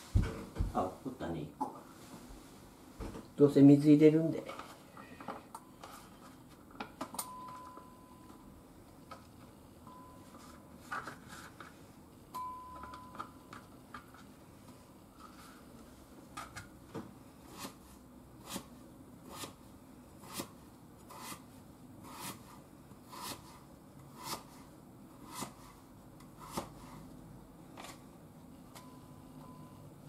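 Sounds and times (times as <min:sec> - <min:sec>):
knife cutting on cutting board: 0:20.2 - 0:21.4, 0:22.0 - 0:24.6, 0:26.4 - 0:26.9.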